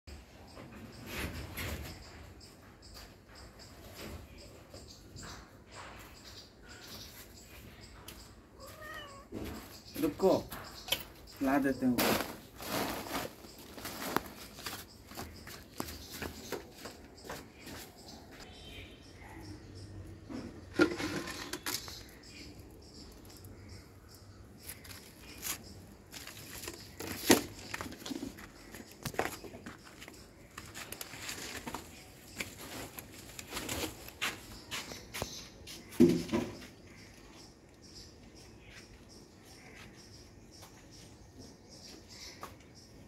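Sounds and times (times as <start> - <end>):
shuffling footsteps on concrete: 6.7 - 18.9, 22.0 - 37.3, 38.1 - 43.0
plastic sack rustling: 11.8 - 15.3.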